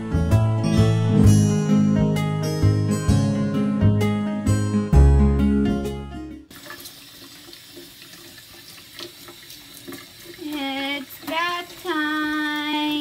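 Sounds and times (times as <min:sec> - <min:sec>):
faucet sprayer running water: 0:06.5 - 0:13.0.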